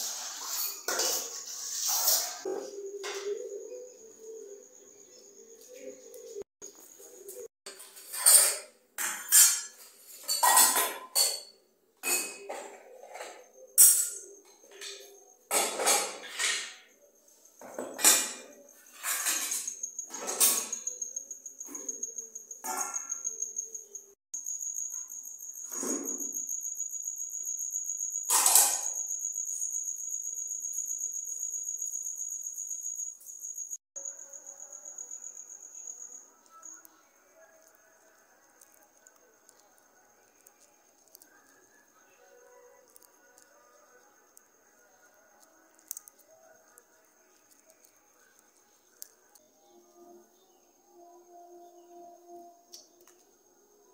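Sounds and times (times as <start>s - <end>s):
dish-washing clatter: 0.0s - 3.3s, 7.7s - 16.9s, 17.6s - 20.9s, 28.3s - 29.0s
cricket trilling: 1.9s - 7.5s, 12.0s - 53.9s.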